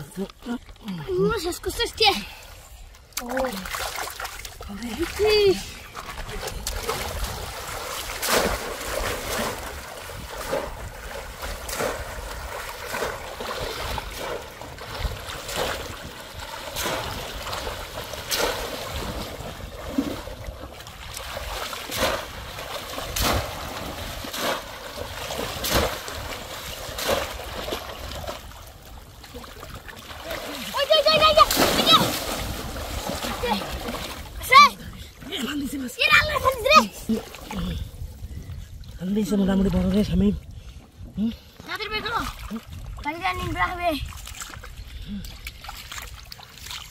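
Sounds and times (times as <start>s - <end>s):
wading through shallow water: 0.0s - 46.9s
sharp water splash: 3.2s - 34.8s.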